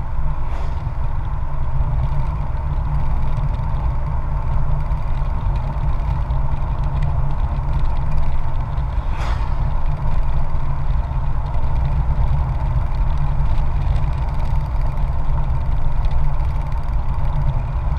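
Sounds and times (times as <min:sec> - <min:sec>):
motorcycle engine drone: 0:00.0 - 0:17.9
wind rumble on microphone: 0:00.0 - 0:17.9
brief swish: 0:00.4 - 0:01.1, 0:09.0 - 0:10.3.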